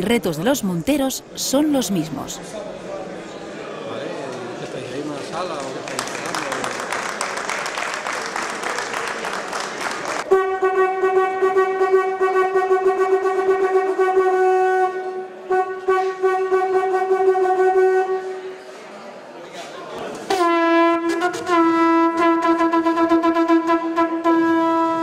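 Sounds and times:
applause: 5.2s - 10.3s
hunting horn blasts: 10.3s - 18.4s, 20.3s - 25.0s.

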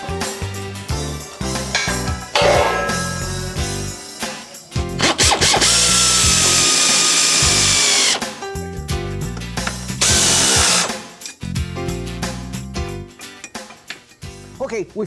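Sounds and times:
background music: 0.0s - 15.0s
power tool running: 5.0s - 8.3s, 10.0s - 11.0s.

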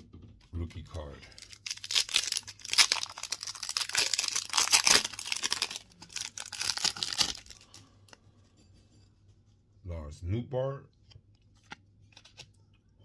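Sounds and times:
foil wrapper tearing and crinkling: 1.3s - 7.8s.

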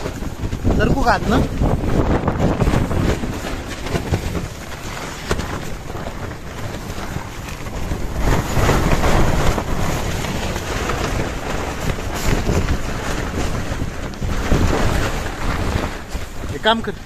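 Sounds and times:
wind buffeting a tent: 0.0s - 17.0s.

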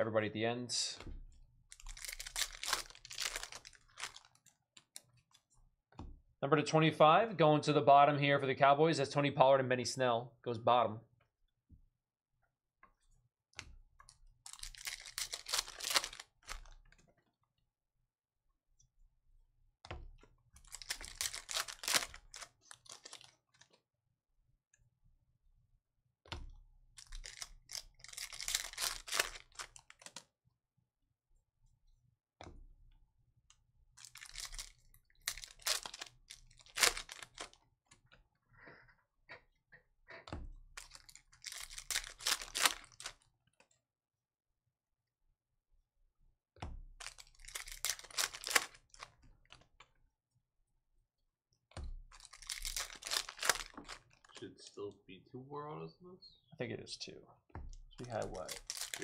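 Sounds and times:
foil wrappers crinkling and tearing: 1.7s - 4.4s, 14.5s - 16.8s, 20.6s - 23.4s, 27.0s - 30.2s, 34.0s - 37.6s, 40.8s - 43.2s, 47.0s - 49.2s, 52.1s - 54.4s, 58.0s - 59.0s.

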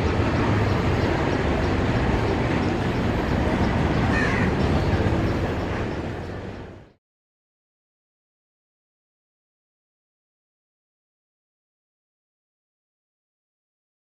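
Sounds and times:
train wheels rumbling on rails: 0.0s - 7.0s
bird call: 3.6s - 6.4s.

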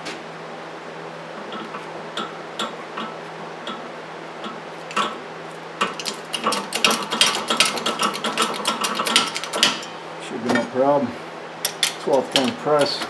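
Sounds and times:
metallic clicking and rattling: 5.8s - 9.9s, 11.6s - 13.0s.

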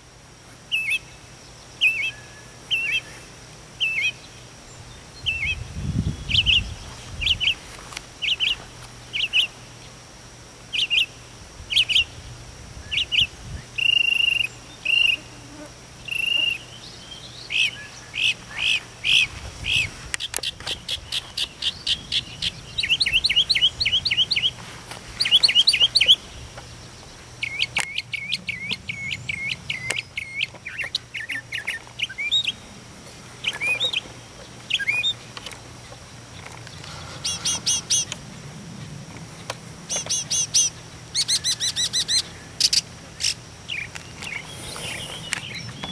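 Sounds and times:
mockingbird singing: 0.7s - 1.1s, 1.8s - 3.2s, 3.8s - 7.6s, 10.7s - 12.2s, 16.0s - 24.6s, 25.2s - 32.7s, 33.4s - 35.4s, 36.4s - 38.2s, 39.9s - 45.9s.

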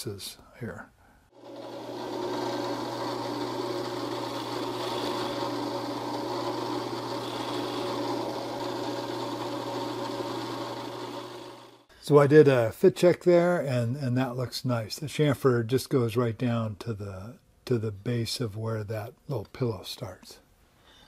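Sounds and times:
bit cutting hardwood: 1.4s - 11.9s
drill press motor running: 1.4s - 11.9s.

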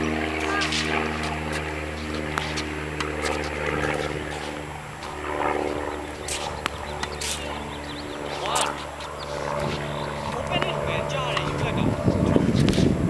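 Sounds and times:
low engine drone: 0.0s - 13.0s
tennis balls struck and bouncing: 0.3s - 5.2s, 6.3s - 7.4s.

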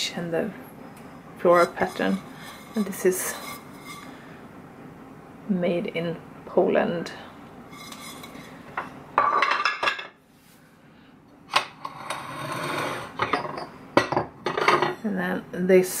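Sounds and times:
ceramic plates and bowls clinking: 7.8s - 10.2s, 11.6s - 15.0s.

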